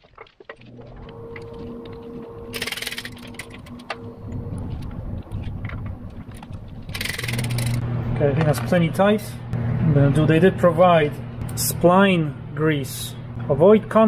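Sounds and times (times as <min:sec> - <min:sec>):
steady low hum: 0:00.4 - 0:14.0
hex key metal clicks and scraping: 0:02.5 - 0:04.0, 0:04.8 - 0:07.8.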